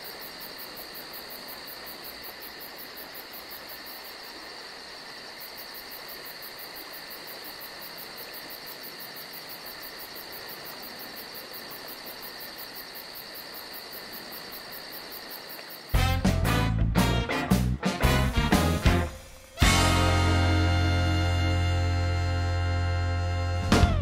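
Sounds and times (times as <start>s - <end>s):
crickets chirping: 0.0s - 16.0s
faint hiss: 18.6s - 22.3s.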